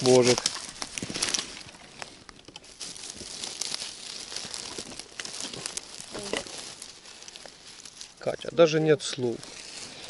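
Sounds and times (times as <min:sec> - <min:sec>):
forest litter rustling and crackling: 0:00.0 - 0:10.0.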